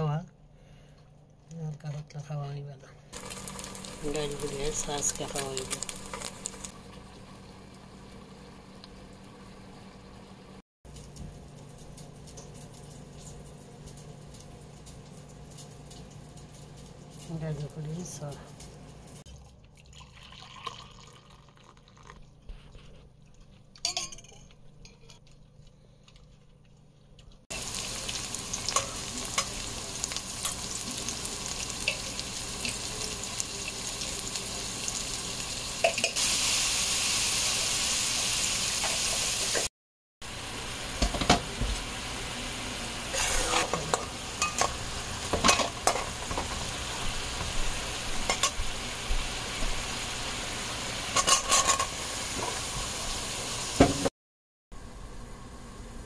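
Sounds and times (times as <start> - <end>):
onions and spices sizzling in oil: 3.1 - 18.2, 27.5 - 54.1
metal spatula scraping a pan: 51.2 - 52.5.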